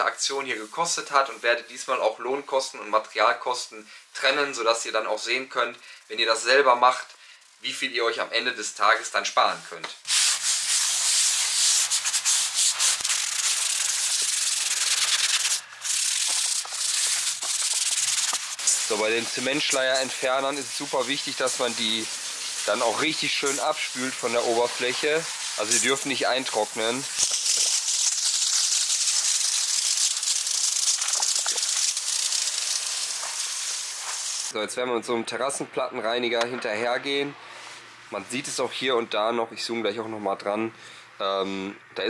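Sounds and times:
rough hissing of paving cleaning: 0:10.0 - 0:34.6.

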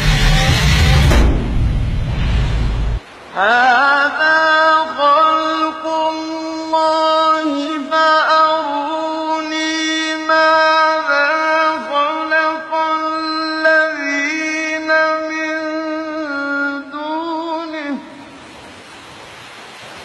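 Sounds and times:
person chanting recitation: 0:03.3 - 0:18.3.

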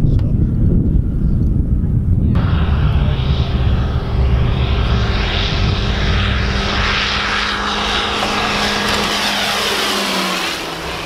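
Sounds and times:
propeller airplane droning: 0:00.0 - 0:11.0.

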